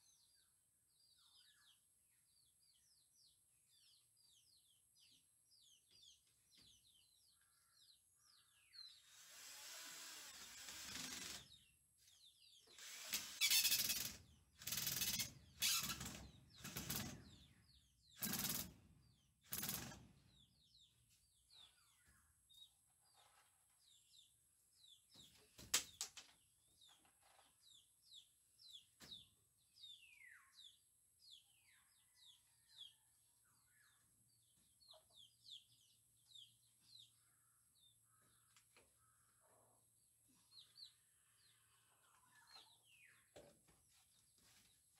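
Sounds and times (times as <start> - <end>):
bird chirps: 11.0 - 26.0, 26.6 - 39.8.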